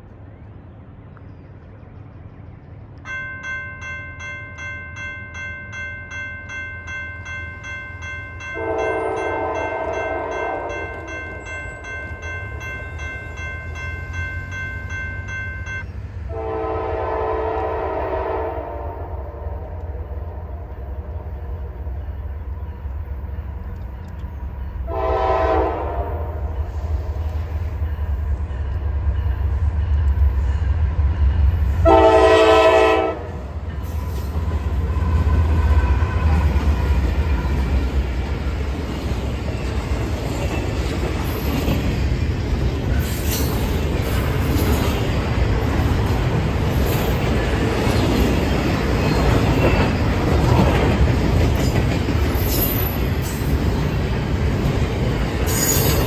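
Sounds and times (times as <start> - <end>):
low train rumble: 0.0 - 56.0
train wheel and rail noise: 0.0 - 56.0
locomotive air horn blasts: 8.6 - 10.9, 16.3 - 19.8, 24.9 - 26.6, 31.8 - 33.4.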